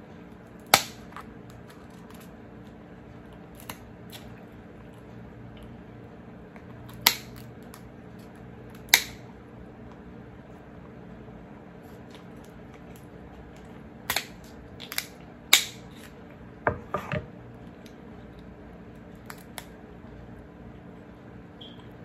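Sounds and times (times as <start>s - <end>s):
shears cracking crab shell: 0.6s - 2.3s, 6.6s - 9.3s, 14.0s - 16.2s, 19.2s - 19.8s.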